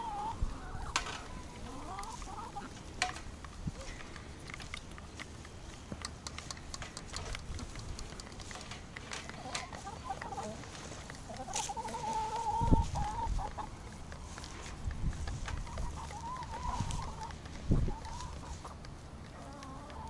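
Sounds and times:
hens clucking: 0:00.0 - 0:20.0
beaks pecking at feed dish: 0:00.9 - 0:20.0.

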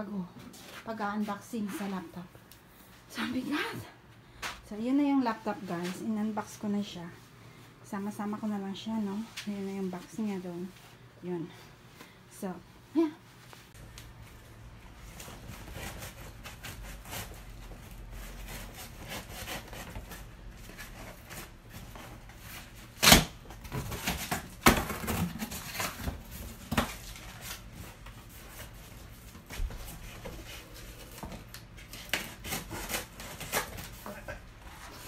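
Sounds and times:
tape and cardboard rubbing: 0:15.0 - 0:35.0.

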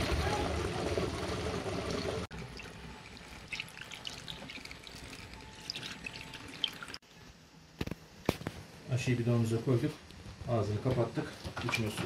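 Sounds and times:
liquid pouring into a funnel: 0:00.8 - 0:07.0.

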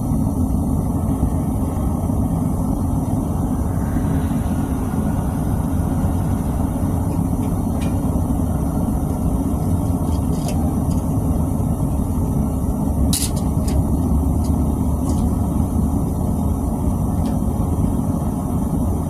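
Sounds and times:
furnace burner rushing: 0:00.0 - 0:19.0.

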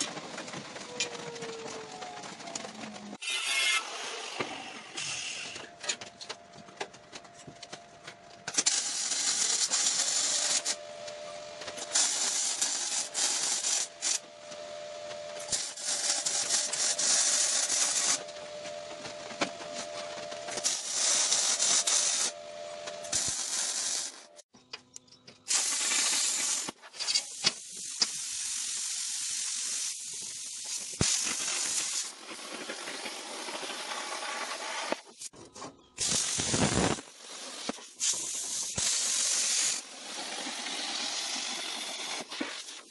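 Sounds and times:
steady hum: 0:05.2 - 0:24.4
electric arc welding crackling: 0:08.5 - 0:24.5, 0:25.5 - 0:35.3, 0:36.0 - 0:42.9.

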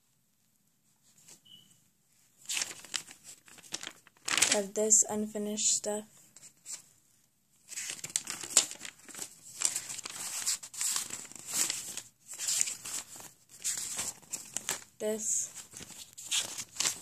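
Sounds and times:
paper pages rustling: 0:02.4 - 0:04.8, 0:07.6 - 0:17.0.

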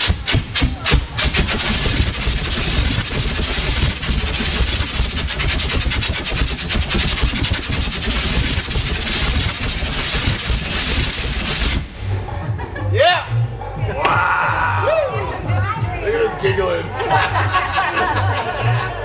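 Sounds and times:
roaring gas flame bursts: 0:00.0 - 0:12.4.

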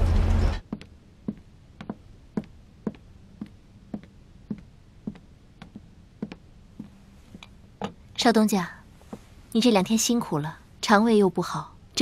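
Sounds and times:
hard-heeled footsteps on wooden floor: 0:00.6 - 0:08.0.

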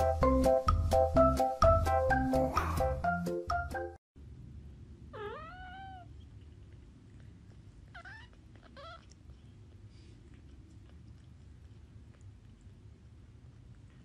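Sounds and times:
low steady background noise: 0:04.2 - 0:14.0
kitten meowing: 0:05.1 - 0:06.2, 0:07.9 - 0:09.2.

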